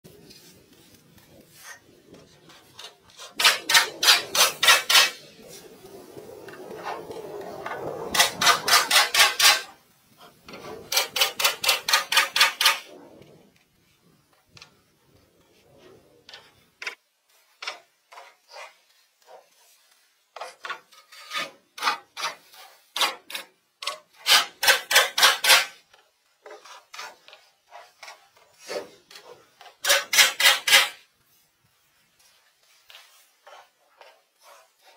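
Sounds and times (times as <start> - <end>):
rasping strokes: 0.1 - 13.5.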